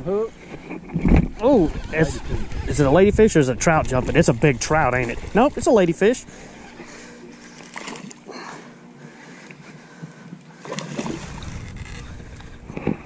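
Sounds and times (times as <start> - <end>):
fish splashing at water surface: 7.5 - 8.3, 10.6 - 12.1.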